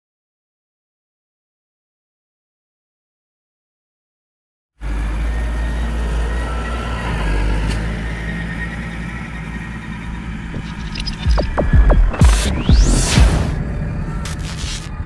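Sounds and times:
tractor engine running: 0:04.8 - 0:14.9
sharp thumps: 0:10.5 - 0:14.9.

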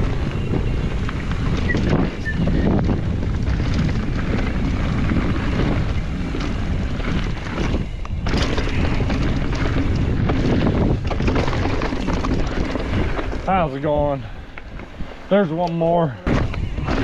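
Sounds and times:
bike rattling clicks: 0:00.0 - 0:13.6
wind buffeting microphone: 0:00.0 - 0:17.0.

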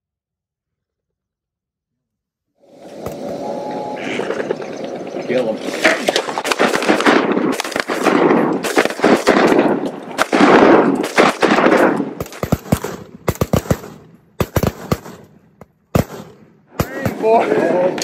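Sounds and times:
shotgun fire: 0:05.7 - 0:17.6.

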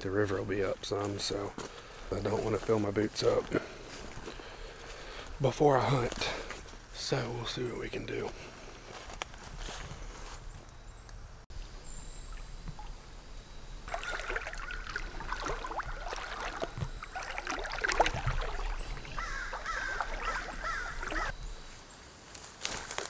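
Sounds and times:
water splashing around wading legs: 0:13.8 - 0:21.3.

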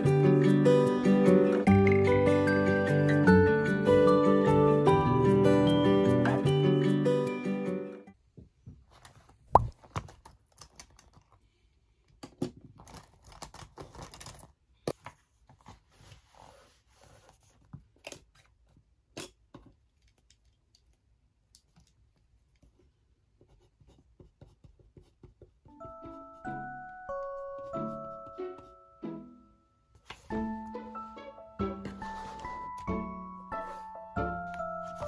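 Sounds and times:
pages rustling and sliding: 0:12.8 - 0:18.5, 0:30.0 - 0:30.4, 0:31.8 - 0:32.9, 0:33.6 - 0:35.0.

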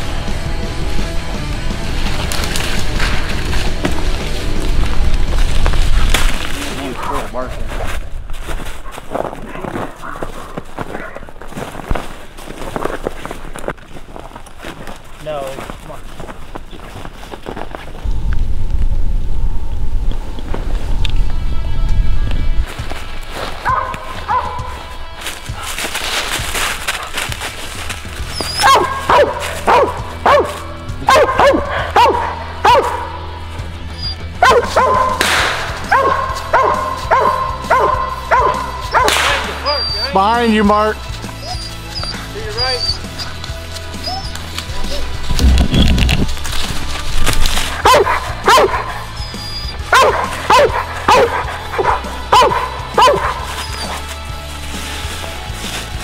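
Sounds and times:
low background music: 0:00.0 - 0:13.4, 0:18.0 - 0:56.0
dog barking: 0:08.9 - 0:11.2, 0:23.6 - 0:24.9, 0:28.4 - 0:33.2, 0:34.4 - 0:39.9, 0:47.8 - 0:54.0.

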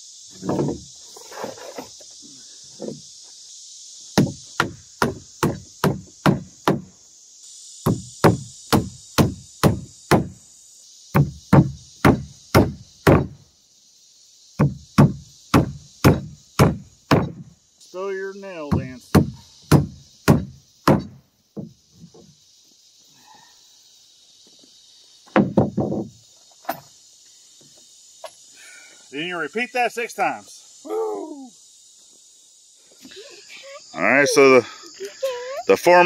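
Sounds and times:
high-pitched hiss: 0:00.0 - 0:36.0.

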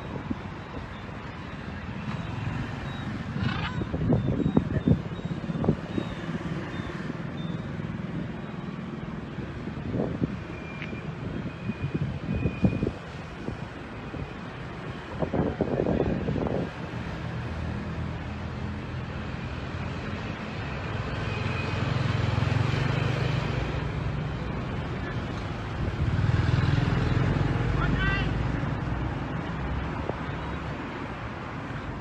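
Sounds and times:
street traffic noise: 0:00.0 - 0:32.0
wind buffeting microphone: 0:03.2 - 0:07.2.

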